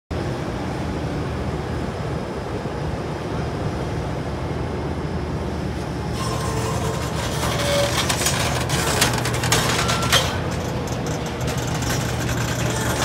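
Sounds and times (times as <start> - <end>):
excavator diesel engine droning: 5.7 - 13.0.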